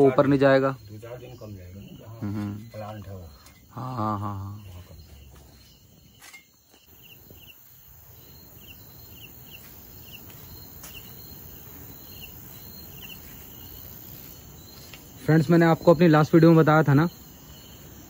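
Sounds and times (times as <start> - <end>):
insects chirping: 0.0 - 18.0.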